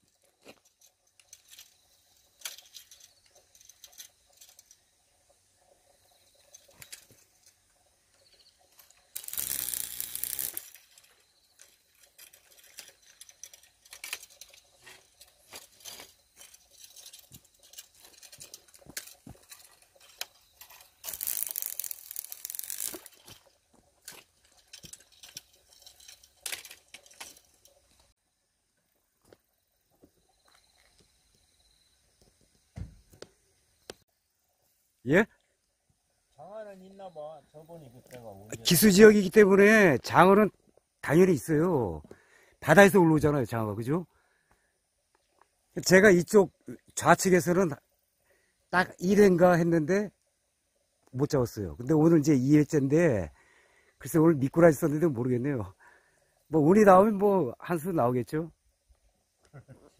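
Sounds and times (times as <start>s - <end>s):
rustling: 6.3s - 28.2s.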